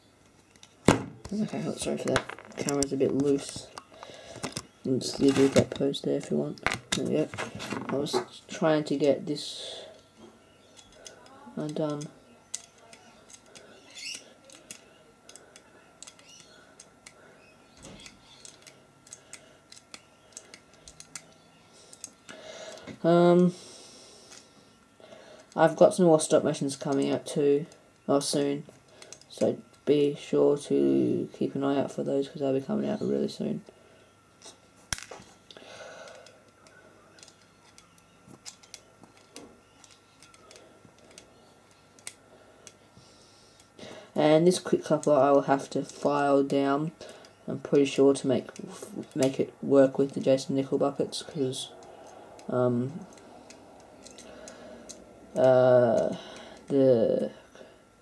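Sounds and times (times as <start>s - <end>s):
faint steady whine: 0.0s - 58.0s
small parts clicking and tapping: 10.2s - 23.0s, 25.4s - 27.4s, 28.0s - 29.9s, 34.4s - 42.9s, 43.6s - 57.3s
small parts clicking on a tabletop: 10.8s - 17.2s, 17.8s - 22.2s.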